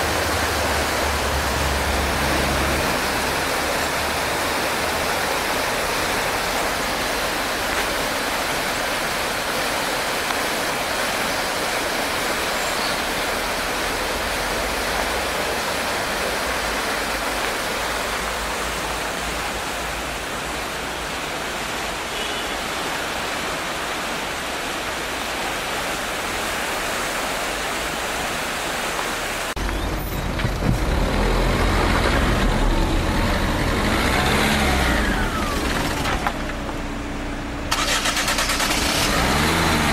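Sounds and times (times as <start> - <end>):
river water rushing: 0.0 - 39.9
car engine running: 29.6 - 39.9.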